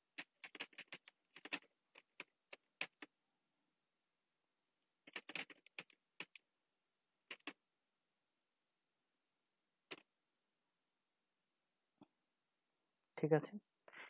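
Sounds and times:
computer keyboard keystrokes: 0.1s - 3.1s, 5.1s - 6.4s, 7.3s - 7.6s, 9.9s - 10.1s.

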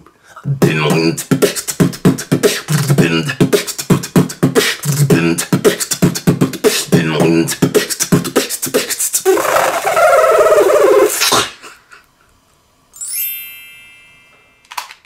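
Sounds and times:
person beatboxing: 0.4s - 11.6s.

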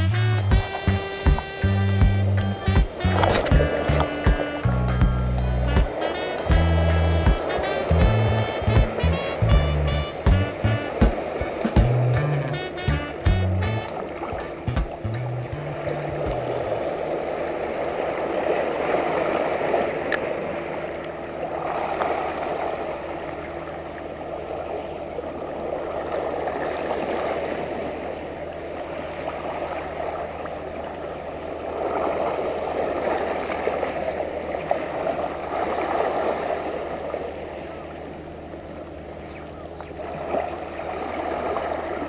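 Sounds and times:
faint click: 20.1s - 20.3s.

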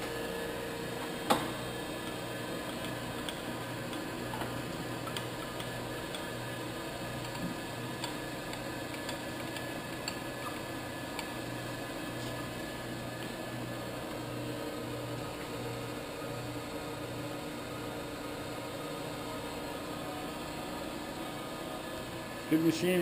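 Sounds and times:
light irregular ticks: 2.0s - 6.4s, 7.2s - 11.4s.

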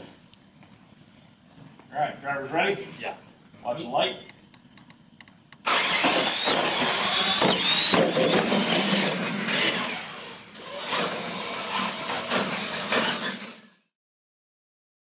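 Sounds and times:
toy truck motors whining: 5.6s - 13.9s
tyres rolling on hard floor: 6.0s - 9.8s, 10.9s - 13.6s.

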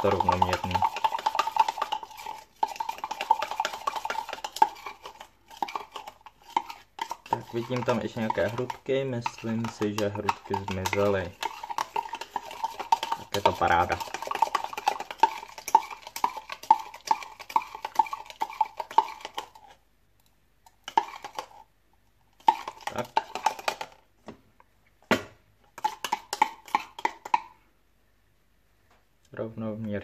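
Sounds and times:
metal spoon clinking in plastic cup: 0.0s - 19.6s.

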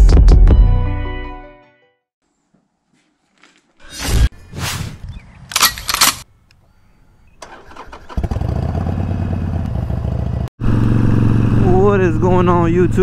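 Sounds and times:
leather gloves rustling: 2.3s - 3.9s
motorcycle engine idling: 7.4s - 13.0s.

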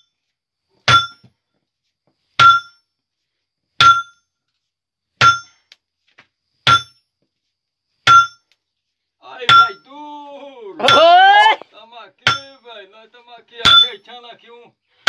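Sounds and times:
hammer striking hot steel: 0.8s - 1.3s, 2.4s - 2.8s, 3.8s - 4.2s, 5.2s - 5.7s, 6.6s - 7.0s, 8.0s - 8.5s, 9.5s - 9.8s, 10.8s - 11.1s, 12.2s - 12.6s, 13.6s - 14.0s.

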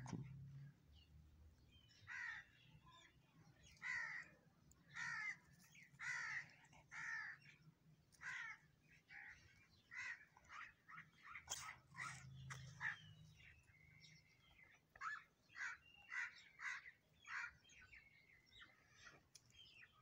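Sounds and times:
crow cawing: 2.1s - 2.5s, 5.0s - 5.4s, 6.0s - 7.4s, 8.2s - 9.3s, 9.9s - 10.6s.

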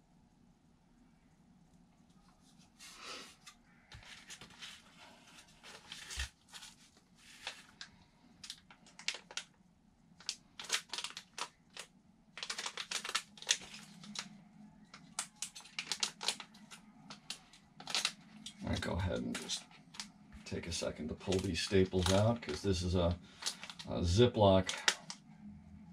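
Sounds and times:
plastic bag crinkling: 4.0s - 9.6s, 10.2s - 25.2s.

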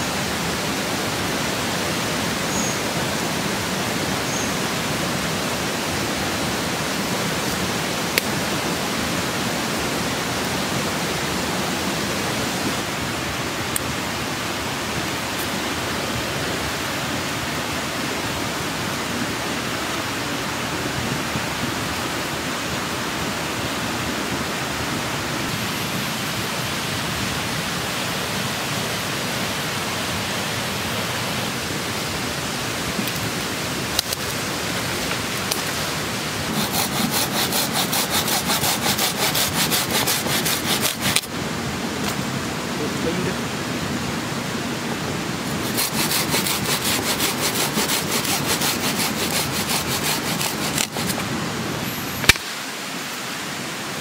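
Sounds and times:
river water rushing: 0.0s - 54.0s
fast repeating rasp: 36.5s - 41.3s, 45.5s - 51.2s
sharp click: 52.2s - 52.5s.

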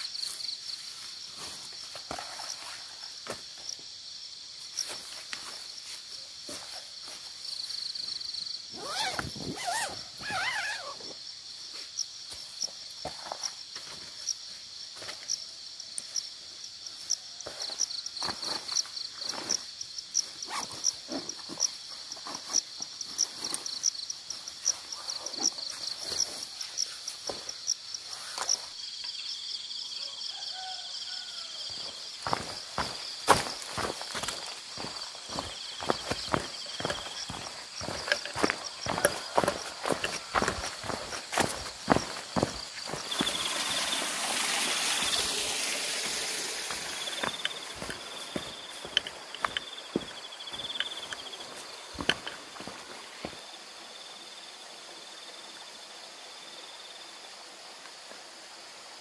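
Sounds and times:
camping gear rustling and clicking: 0.0s - 4.0s, 4.6s - 11.2s, 17.0s - 29.1s, 31.7s - 43.9s, 46.0s - 53.4s
night insects chirping: 0.0s - 59.0s.

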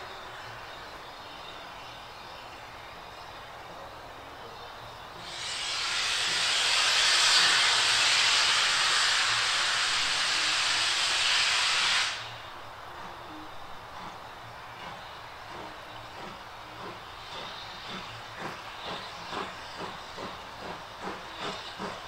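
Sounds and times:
steam locomotive hissing steam: 5.1s - 22.0s.

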